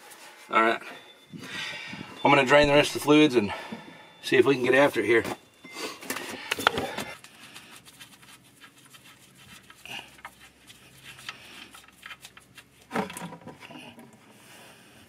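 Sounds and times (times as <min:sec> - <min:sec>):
rustling and knocks: 0:11.2 - 0:14.1.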